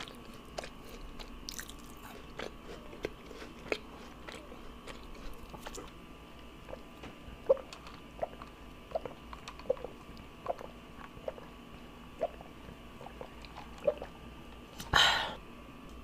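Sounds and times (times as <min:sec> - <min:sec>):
soft swallowing gulps: 0:06.6 - 0:14.2.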